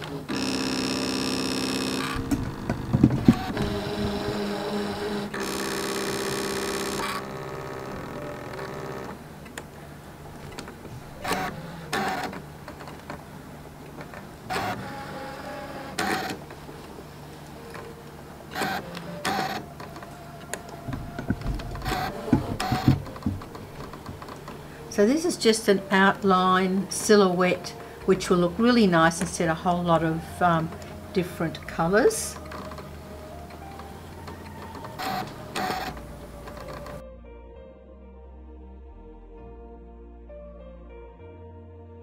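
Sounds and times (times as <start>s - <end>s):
cutting machine motors whirring: 0.0s - 24.9s, 30.7s - 37.0s.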